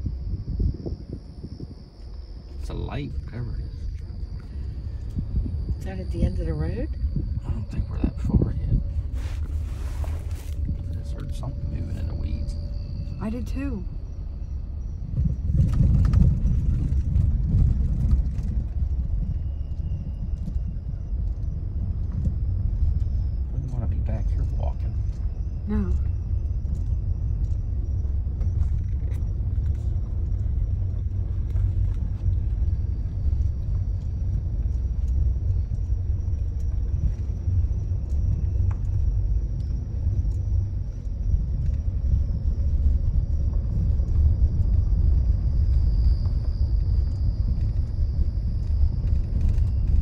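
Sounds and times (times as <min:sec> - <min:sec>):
car rolling over rough road: 0:08.9 - 0:50.0
faint ticks: 0:24.9 - 0:50.0.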